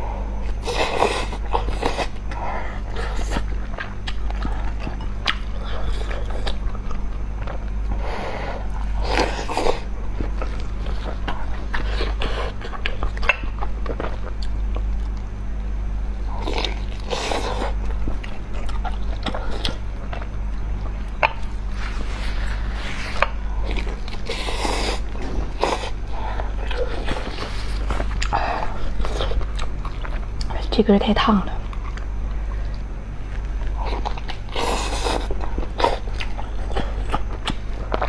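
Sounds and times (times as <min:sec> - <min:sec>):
low electrical hum: 0:00.0 - 0:38.0
wet chewing and slurping: 0:16.3 - 0:30.6, 0:31.6 - 0:38.0.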